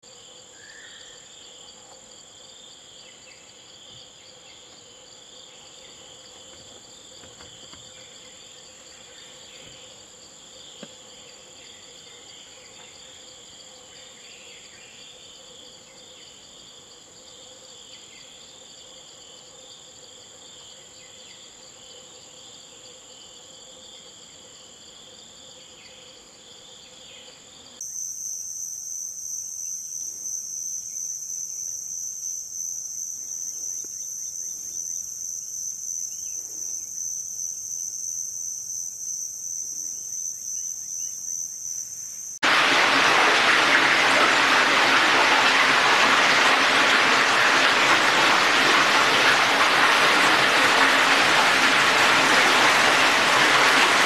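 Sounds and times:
high insect drone: 0.0 - 42.4
insect chorus: 0.0 - 54.0.

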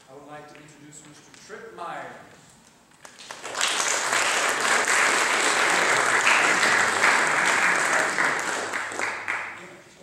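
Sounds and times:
audience applauding: 3.0 - 9.7.

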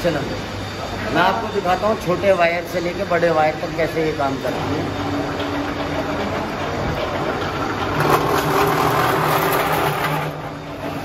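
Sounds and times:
wire stripping machine humming: 3.6 - 11.0.

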